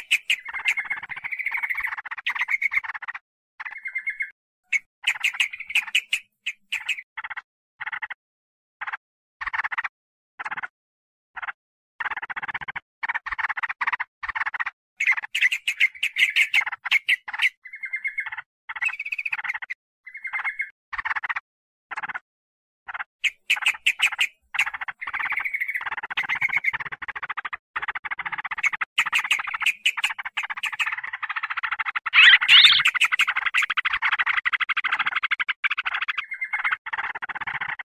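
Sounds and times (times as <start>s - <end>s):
bulbuls chattering: 32.0s - 34.2s.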